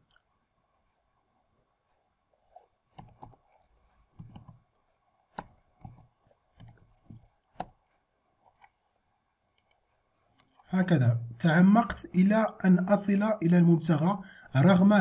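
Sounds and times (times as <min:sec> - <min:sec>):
keyboard typing: 0:02.4 - 0:04.6, 0:05.3 - 0:07.8.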